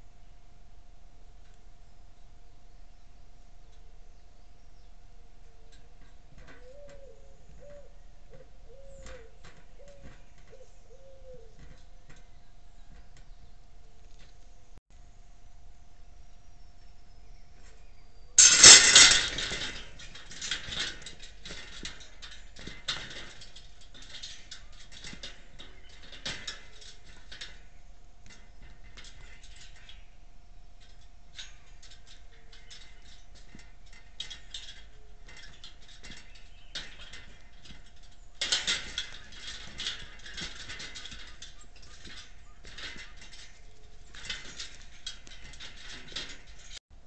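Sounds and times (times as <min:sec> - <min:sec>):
wire cage rattling: 0:05.4 - 0:14.5, 0:18.4 - 0:47.0
animals scrabbling: 0:18.4 - 0:30.1, 0:30.8 - 0:46.8.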